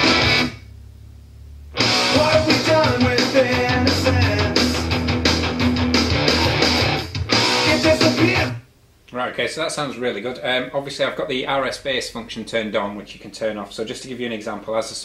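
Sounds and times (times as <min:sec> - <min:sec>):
rock music with electric guitars: 0:00.0 - 0:00.6, 0:01.8 - 0:08.6
heavy bass: 0:00.0 - 0:08.6
person singing: 0:02.0 - 0:05.0, 0:07.4 - 0:08.6.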